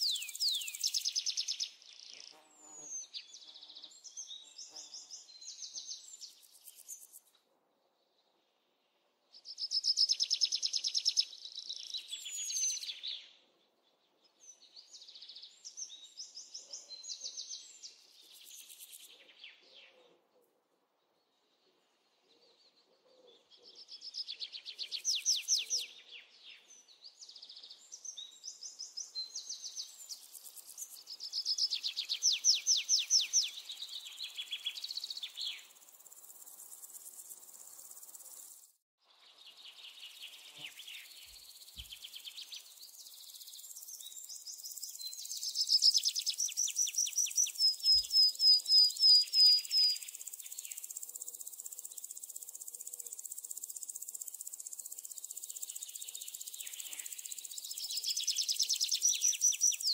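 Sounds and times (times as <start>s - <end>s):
clear evenly spaced bird notes: 0.0s - 1.8s, 39.2s - 52.6s
birds singing trills: 0.0s - 7.2s, 9.4s - 13.4s, 22.4s - 38.7s, 39.4s - 59.9s
faint insect hum: 0.0s - 8.9s, 27.2s - 38.8s, 39.4s - 59.9s.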